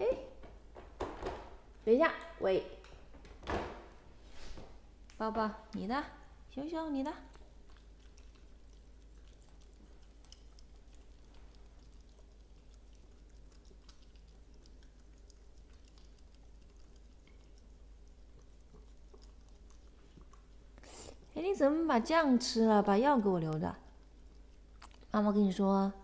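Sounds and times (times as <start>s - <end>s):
low steady hum: 0.0s - 26.0s
dogs licking and chewing: 6.4s - 25.7s.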